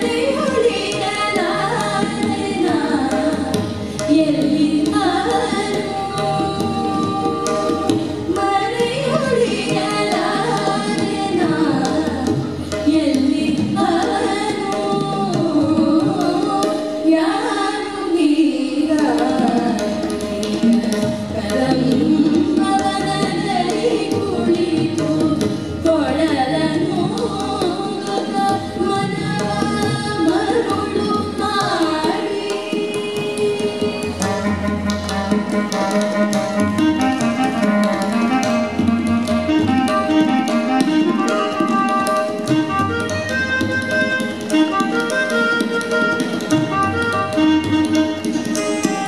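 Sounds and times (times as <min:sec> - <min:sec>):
women singing: 0:00.0 - 0:34.5
tabla: 0:00.0 - 0:49.0.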